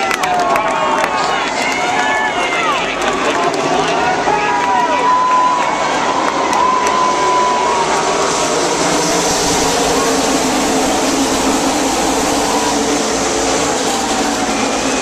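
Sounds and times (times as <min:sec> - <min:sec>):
race car engines roaring: 0:00.0 - 0:15.0.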